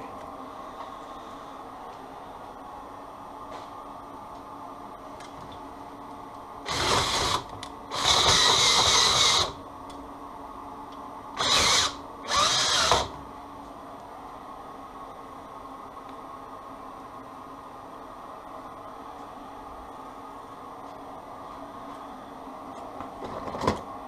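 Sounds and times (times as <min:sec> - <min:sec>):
cordless drill spinning: 0:06.7 - 0:09.6, 0:11.4 - 0:13.1.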